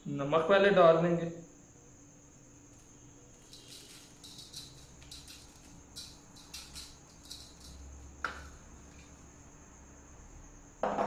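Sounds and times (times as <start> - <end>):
salt sprinkling rustles: 2.7 - 9.3.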